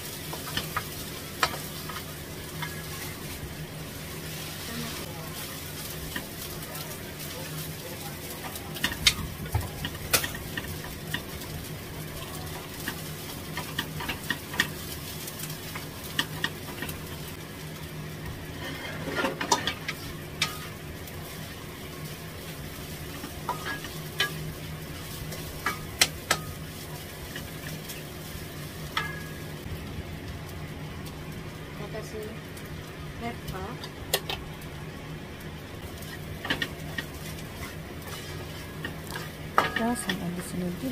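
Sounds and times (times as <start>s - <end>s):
rice sizzling in a wok: 0.0s - 40.9s
wooden spatula scraping: 18.5s - 20.6s, 36.0s - 40.2s.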